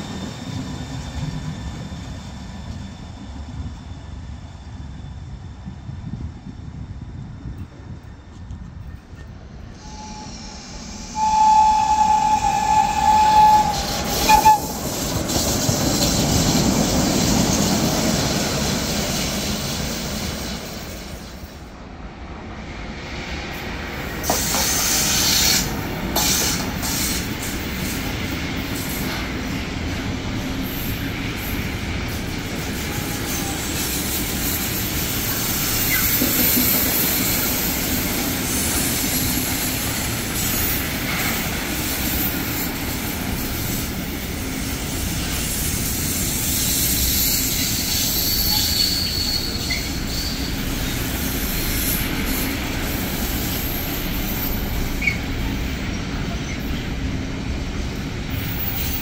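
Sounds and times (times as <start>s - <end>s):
train rumbling past: 0.0s - 59.0s
locomotive horn: 9.8s - 10.5s, 11.1s - 14.8s.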